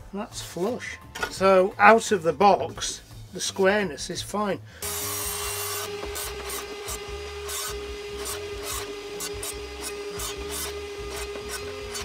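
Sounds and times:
mitre saw motor whine: 4.8s - 12.0s
saw blade cutting wood: 4.8s - 12.0s.

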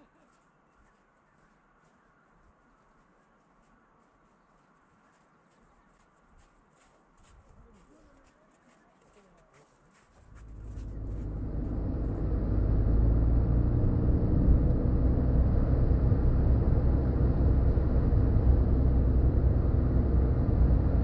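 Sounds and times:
car engine and tyre rumble: 10.2s - 21.0s.

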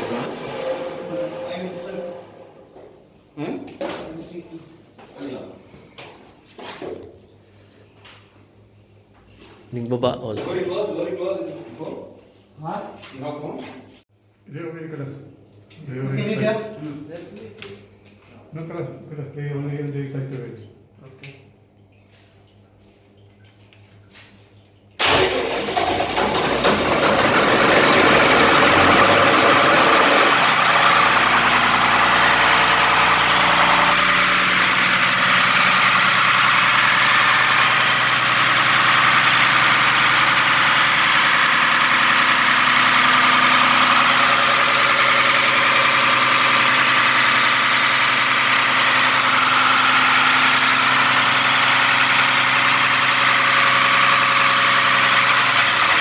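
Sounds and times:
diesel engine starting and running: 0.0s - 2.8s, 25.0s - 56.0s.

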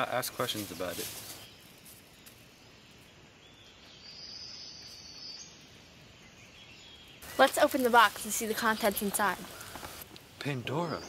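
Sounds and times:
faint outdoor hiss: 0.0s - 11.0s.

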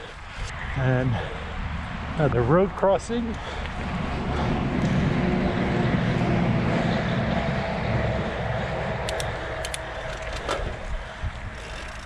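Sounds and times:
wind: 0.0s - 12.0s
bike tyres rumbling on trail: 3.4s - 12.0s
bike clicks and rattles: 9.0s - 12.0s.

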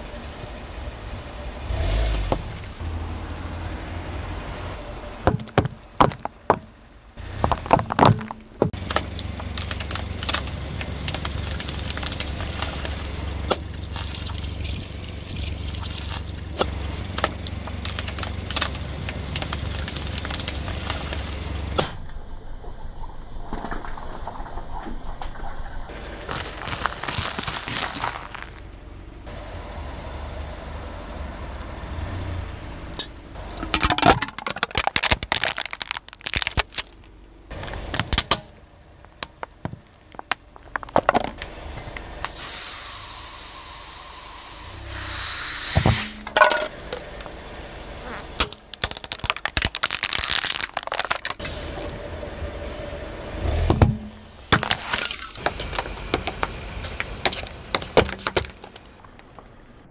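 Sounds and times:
tyre crunching objects on asphalt: 5.2s - 14.6s, 25.9s - 28.9s, 33.4s - 42.3s, 45.8s - 51.4s, 53.4s - 59.4s
aerosol can bursting and hissing: 42.3s - 46.3s.

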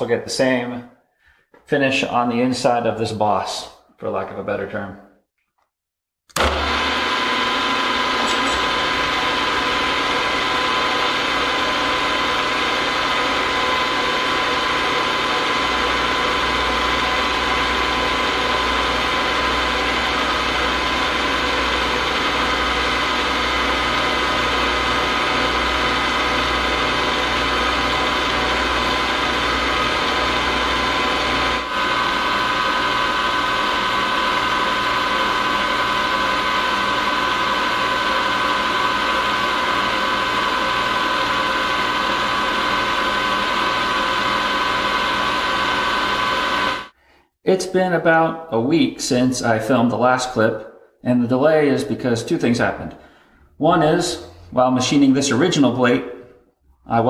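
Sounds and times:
end mill cutting aluminium: 6.4s - 46.7s.

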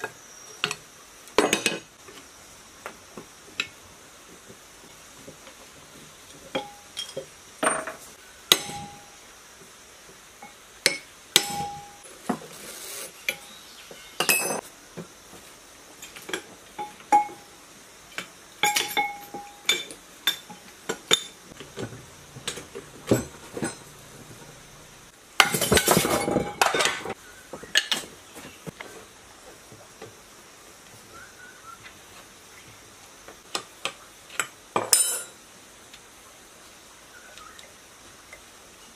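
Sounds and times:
hand tools tapping metal: 6.5s - 9.2s, 10.4s - 12.0s, 14.2s - 14.6s, 18.2s - 24.6s.

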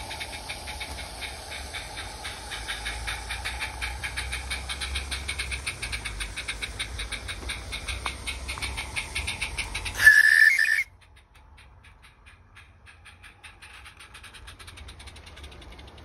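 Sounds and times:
steam locomotive chuffing: 0.0s - 16.0s
steam whistle blast: 10.0s - 10.9s.

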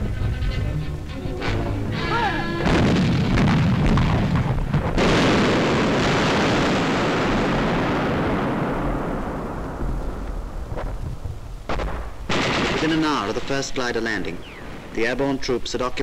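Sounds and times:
artillery blast rumbling: 2.6s - 15.4s.

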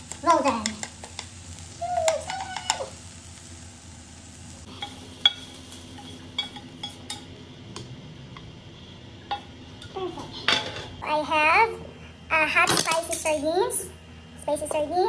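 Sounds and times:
chopsticks stirring food in a pan: 0.0s - 3.6s, 4.2s - 7.2s
light sizzle: 0.0s - 11.2s.

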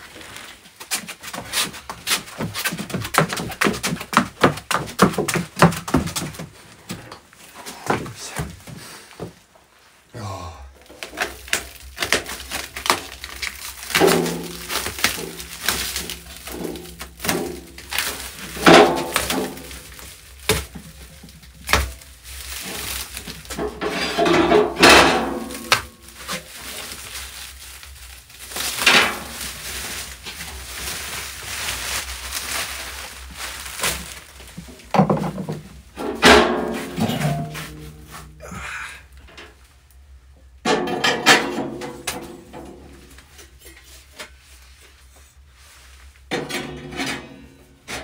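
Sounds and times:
plastic wrap crinkling and ripping: 10.8s - 35.9s.

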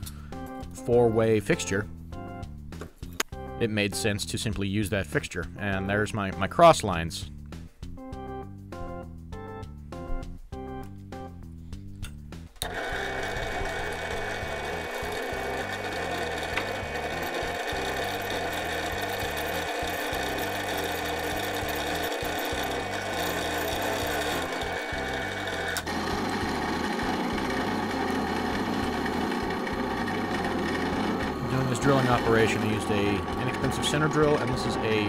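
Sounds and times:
drill press drilling steel: 12.6s - 35.0s.

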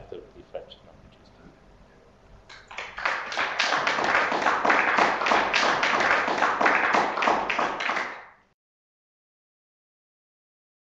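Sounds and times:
audience applauding: 2.5s - 8.4s.

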